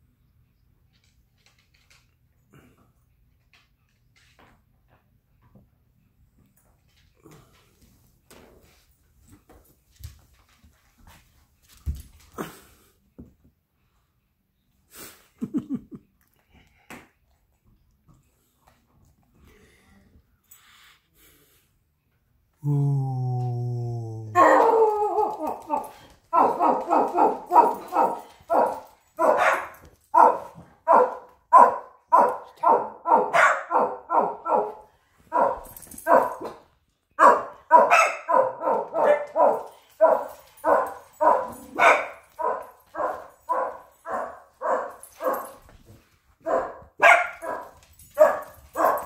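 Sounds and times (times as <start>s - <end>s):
small dog barking: 24.4s - 36.5s, 37.2s - 45.6s, 46.4s - 49.0s.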